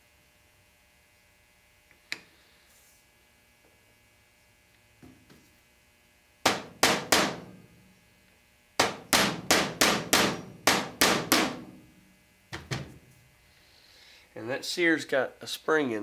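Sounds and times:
hammer tapping steel punch: 0:06.4 - 0:07.6, 0:08.8 - 0:11.8.

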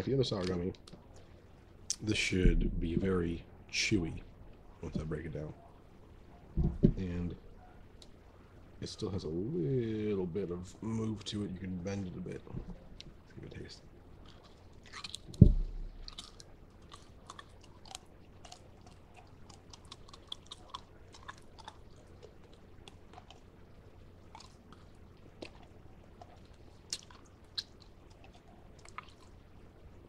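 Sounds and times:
loud low thump: 0:02.4 - 0:03.2, 0:06.6 - 0:07.1, 0:15.4 - 0:16.0
chewing gummy candy: 0:14.2 - 0:29.7.

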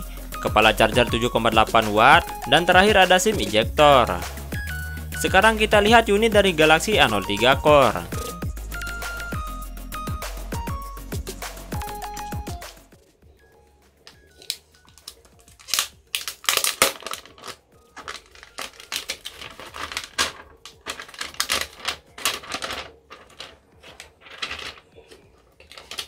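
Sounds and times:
plastic film crinkling: 0:14.1 - 0:26.0.

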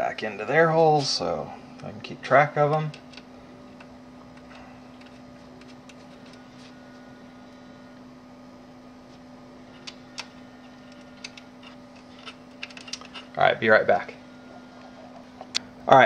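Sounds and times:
low electrical hum: 0:00.0 - 0:16.0.

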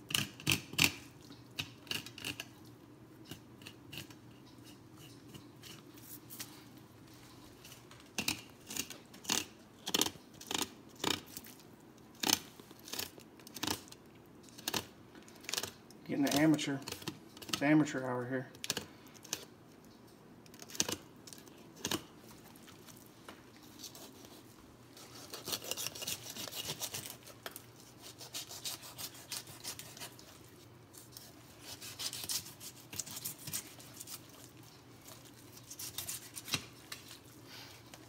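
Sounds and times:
knife scraping along fish bones: 0:01.9 - 0:02.5, 0:03.3 - 0:06.5, 0:23.7 - 0:37.3.

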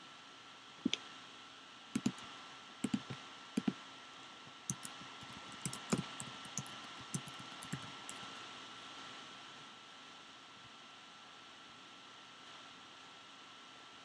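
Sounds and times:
computer keyboard typing: 0:02.0 - 0:02.2, 0:02.8 - 0:03.8, 0:04.7 - 0:08.4
paired clicks: 0:02.0 - 0:02.2, 0:04.7 - 0:08.3.

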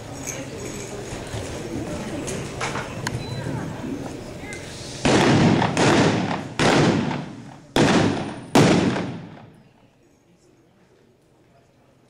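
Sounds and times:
revolver shots echoing: 0:05.1 - 0:09.6.

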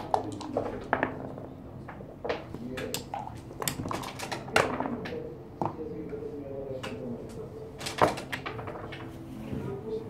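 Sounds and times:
dice and checkers clicking on board: 0:00.0 - 0:05.8, 0:07.8 - 0:09.2.

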